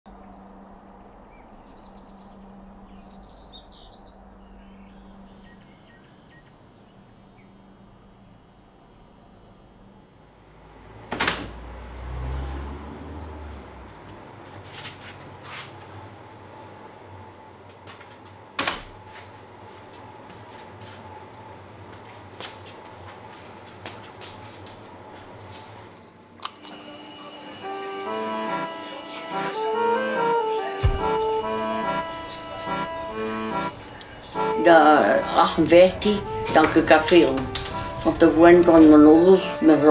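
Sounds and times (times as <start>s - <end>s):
birds chirping: 0.1s - 7.7s, 27.5s - 39.9s
steady low hum: 0.1s - 11.0s, 26.9s - 39.9s.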